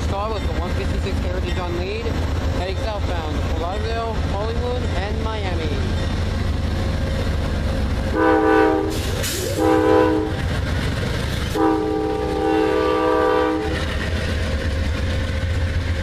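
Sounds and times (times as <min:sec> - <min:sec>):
train rumble and wheel clatter: 0:00.0 - 0:16.0
locomotive air horn blasts: 0:08.1 - 0:10.4, 0:11.5 - 0:13.8.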